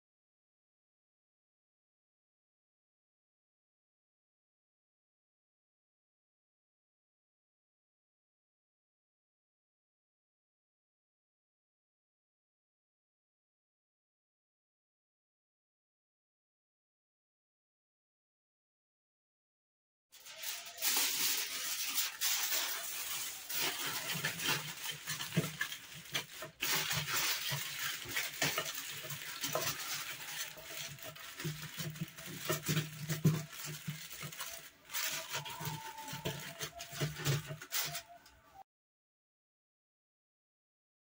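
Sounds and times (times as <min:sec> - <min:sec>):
aluminium foil crinkling: 0:20.2 - 0:38.3.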